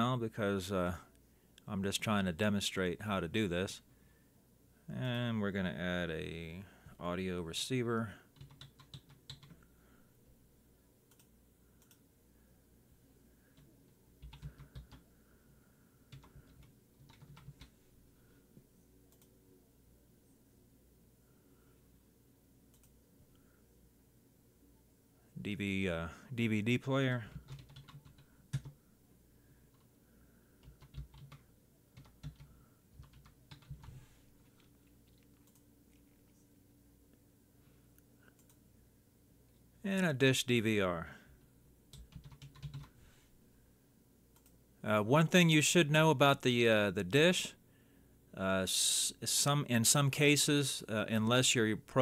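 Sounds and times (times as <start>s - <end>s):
faint steady hum: 0.0s - 52.0s
faint keyboard typing: 8.2s - 9.8s, 11.0s - 12.1s, 13.4s - 15.1s, 16.0s - 19.4s, 22.7s - 23.6s, 27.1s - 28.9s, 29.6s - 37.2s, 37.9s - 38.6s, 41.4s - 43.0s, 44.3s - 44.6s.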